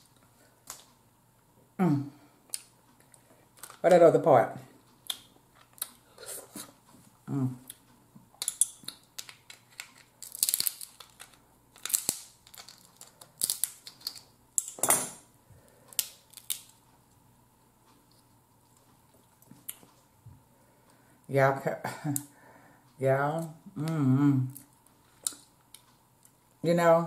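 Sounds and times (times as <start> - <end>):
crab shell cracking: 8.4 - 14.3, 15.9 - 16.8.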